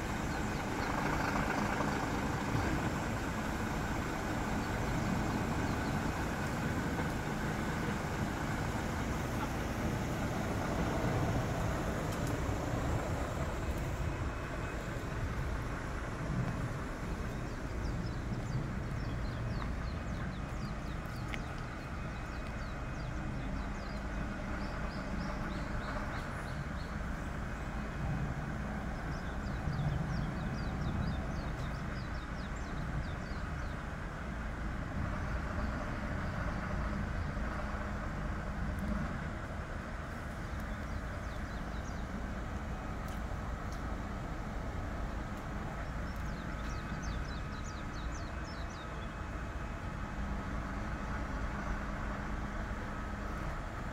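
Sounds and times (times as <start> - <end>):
diesel engine running: 0.0 - 53.9.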